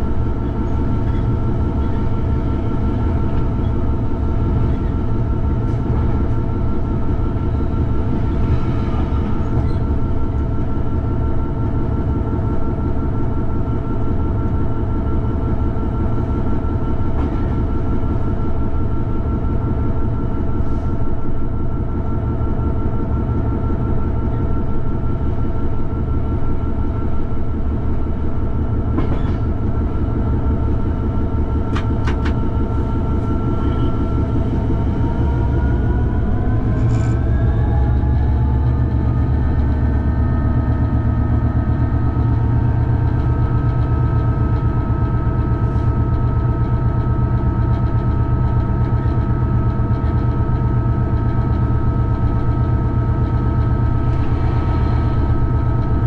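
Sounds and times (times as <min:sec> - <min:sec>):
diesel engine droning: 0:00.0 - 0:56.0
clicks from the track: 0:31.7 - 0:32.4.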